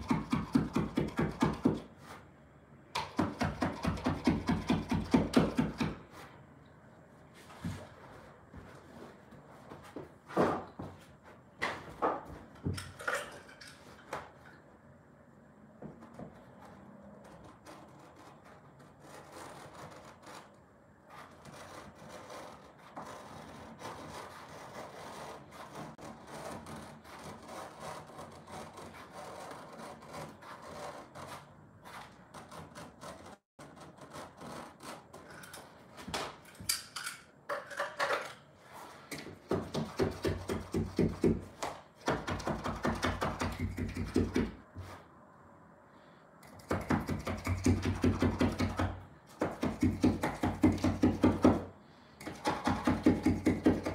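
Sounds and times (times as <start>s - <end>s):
blade scraping carpet: 16.4s - 35.2s.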